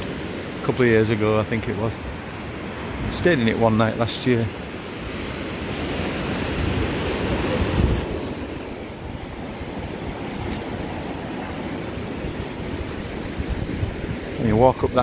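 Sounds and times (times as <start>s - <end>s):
surf breaking on beach: 0.0s - 15.0s
wind on microphone: 5.0s - 15.0s.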